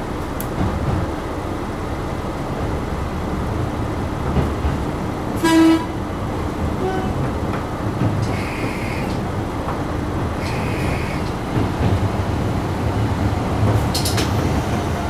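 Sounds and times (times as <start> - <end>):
railcar rumbling along: 0.0 - 15.0
railcar horn blast: 5.4 - 6.0, 6.8 - 7.2.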